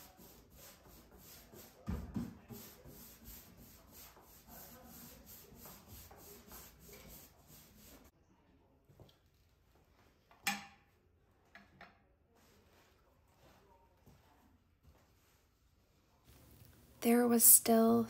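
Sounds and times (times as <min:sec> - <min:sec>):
paintbrush swishing on wood: 0:00.0 - 0:08.1.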